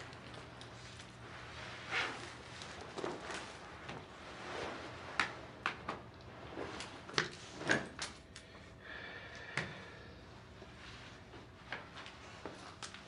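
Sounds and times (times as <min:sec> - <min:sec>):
soft rustling of leather jacket: 0:00.0 - 0:05.6.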